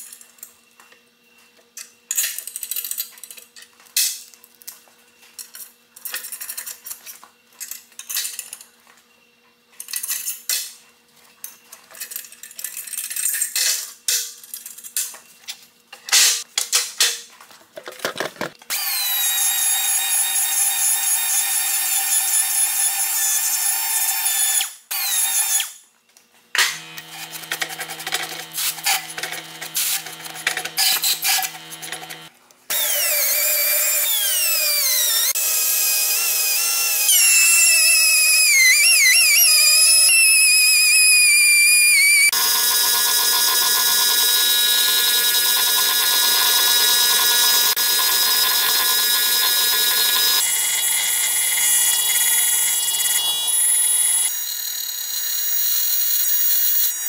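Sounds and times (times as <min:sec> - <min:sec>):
metal clicks and scraping: 0:26.6 - 0:32.3
rotary grinder whining: 0:26.7 - 0:56.3.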